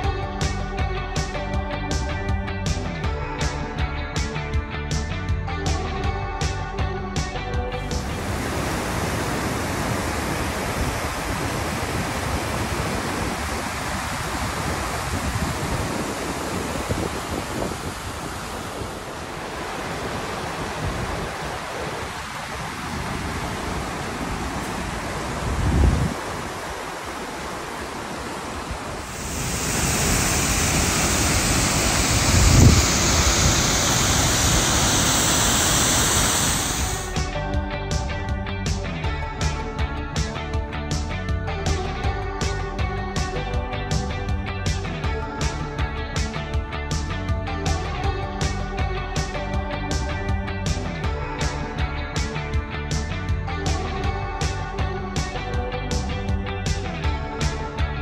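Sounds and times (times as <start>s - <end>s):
steady rushing hiss: 7.8s - 37.4s
wind gust buffeting microphone: 8.0s - 37.2s.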